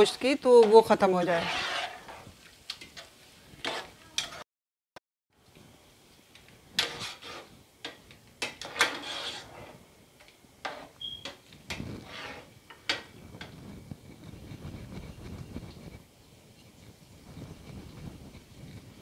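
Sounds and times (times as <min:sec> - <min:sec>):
spoon stirring meat in pot: 0:00.0 - 0:04.4.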